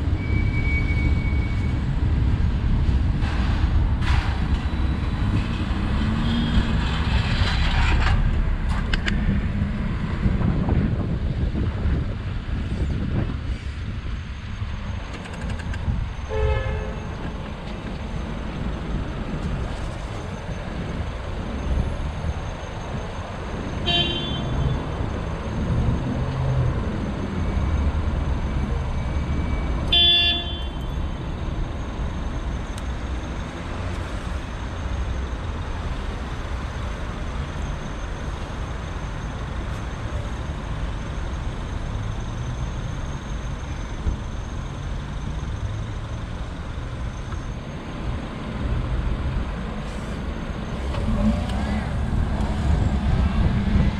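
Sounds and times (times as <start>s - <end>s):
city traffic rumbling: 0.0s - 53.9s
high horn toots: 16.3s - 17.1s, 29.9s - 30.9s.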